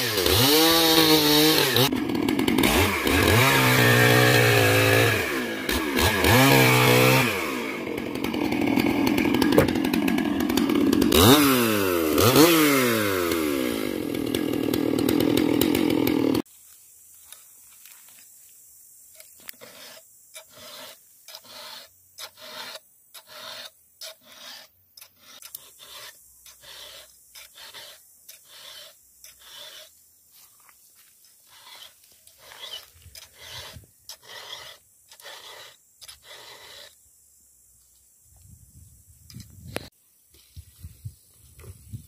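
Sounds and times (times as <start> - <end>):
file rasping on chainsaw chain: 0.0 - 16.4, 19.4 - 30.0, 31.3 - 37.0.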